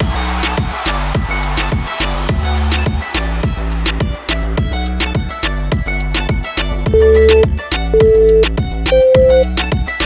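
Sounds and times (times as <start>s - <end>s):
background music with steady beat: 0.0s - 10.0s
timer countdown beeps: 6.9s - 9.5s.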